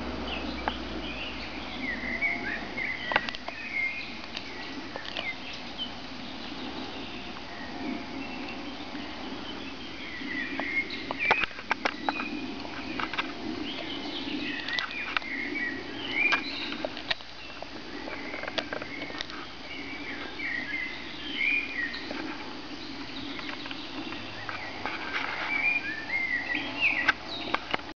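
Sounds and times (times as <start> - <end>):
songbirds chirping: 0.0 - 27.9
dog gnawing wooden stick: 4.2 - 5.6, 16.2 - 19.7.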